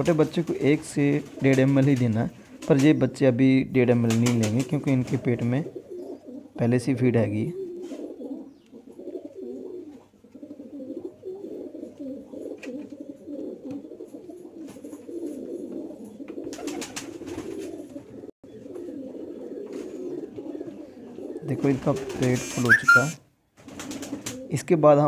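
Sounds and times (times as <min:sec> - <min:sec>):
pigeons cooing: 0:00.0 - 0:03.1, 0:03.9 - 0:24.6.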